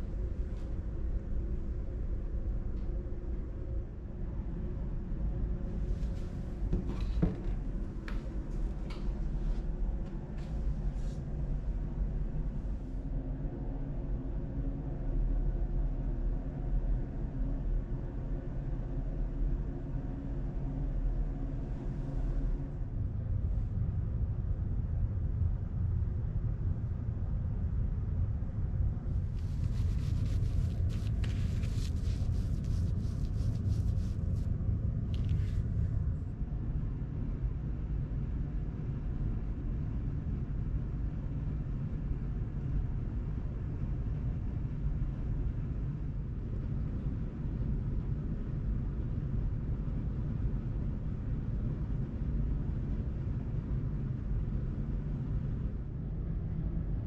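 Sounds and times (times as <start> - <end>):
steady low rumble: 0.0 - 6.8, 7.4 - 57.0.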